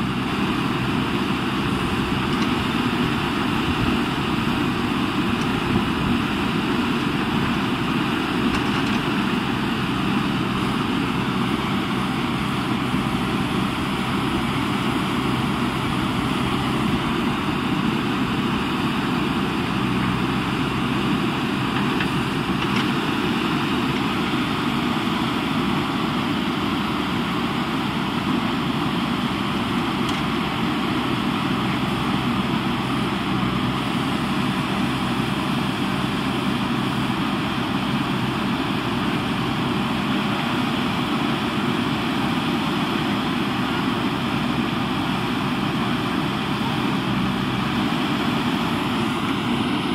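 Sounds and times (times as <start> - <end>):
diesel engine running: 0.0 - 49.9
backhoe arm digging: 0.1 - 24.8.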